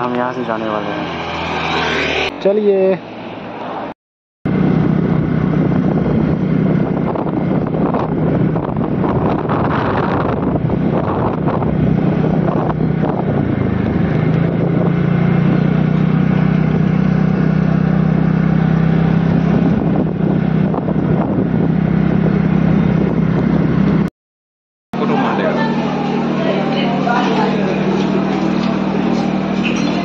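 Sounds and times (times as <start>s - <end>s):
motor scooter engine running: 4.5s - 24.1s, 25.0s - 30.0s
wind buffeting microphone: 4.5s - 24.1s.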